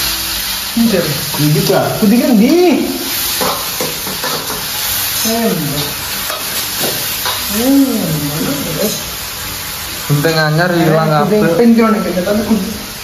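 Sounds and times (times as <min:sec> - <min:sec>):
steady hiss: 0:00.0 - 0:13.0
person's voice: 0:05.2 - 0:06.0, 0:07.5 - 0:09.1.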